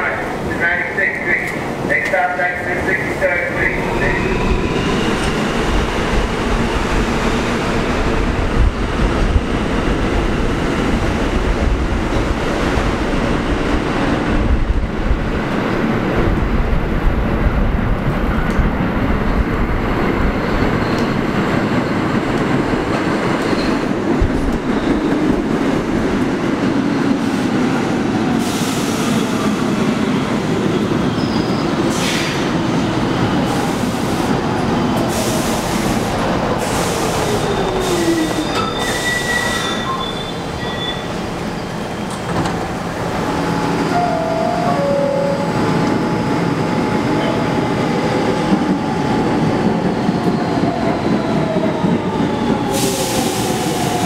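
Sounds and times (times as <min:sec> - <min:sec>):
subway train wheels rumbling: 0:00.0 - 0:54.0
high brake squeals: 0:31.1 - 0:32.3, 0:37.3 - 0:42.4.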